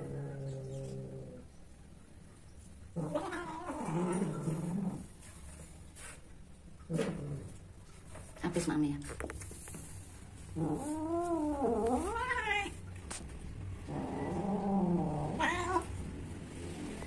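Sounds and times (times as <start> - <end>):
cat yowling: 15.1 - 15.9.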